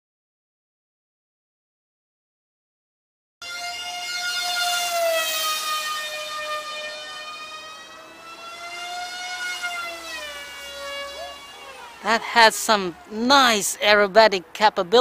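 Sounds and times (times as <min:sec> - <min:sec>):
model plane motor whining: 0:03.4 - 0:12.3.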